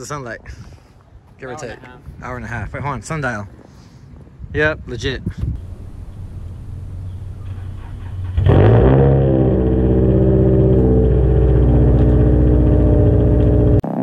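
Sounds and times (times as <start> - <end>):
car engine starting and revving: 5.6 - 14.0.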